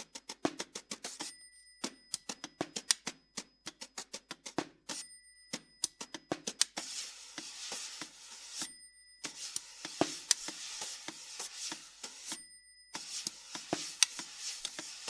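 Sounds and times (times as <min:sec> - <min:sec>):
rasping scraping on drum: 0:06.8 - 0:12.4, 0:13.0 - 0:15.0.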